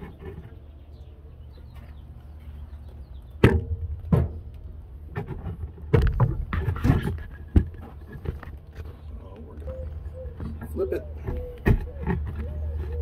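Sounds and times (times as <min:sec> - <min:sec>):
handling knocks and thumps: 0:03.4 - 0:09.0, 0:10.3 - 0:13.0.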